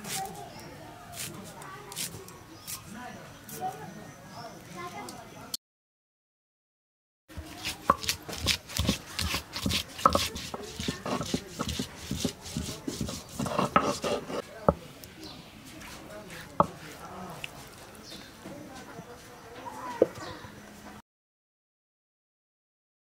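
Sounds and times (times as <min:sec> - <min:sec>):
stone knocking and grinding: 0:07.4 - 0:14.4, 0:16.6 - 0:16.9.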